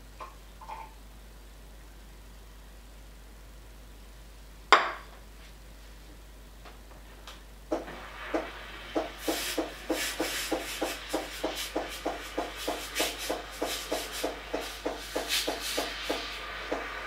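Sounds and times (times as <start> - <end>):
milk hissing: 7.8 - 17.0
steam wand spurting: 7.8 - 17.0.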